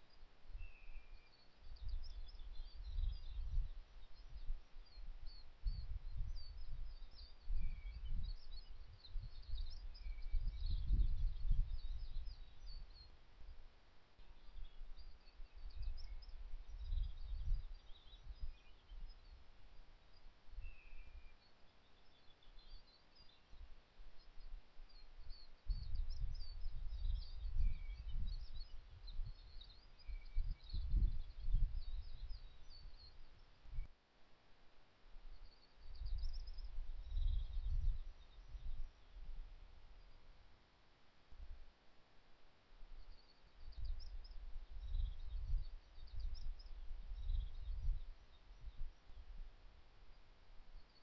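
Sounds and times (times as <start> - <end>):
wind rumble on microphone: 0.0 - 13.6, 14.4 - 19.5, 24.3 - 33.9, 35.4 - 40.1, 43.1 - 49.8.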